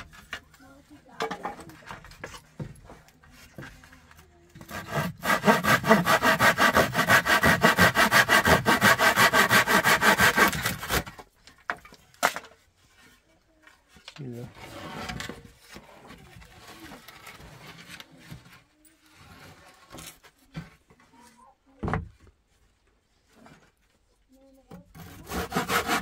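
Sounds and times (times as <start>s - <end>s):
hand saw cutting wood: 4.6s - 11.2s, 24.9s - 26.0s.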